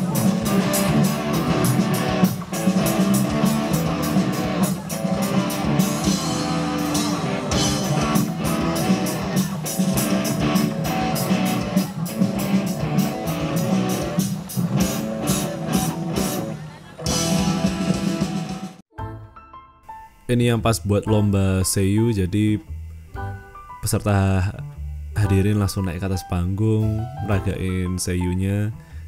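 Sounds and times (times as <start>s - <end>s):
drum kit beat: 0.0s - 18.8s
electric guitars: 0.0s - 18.8s.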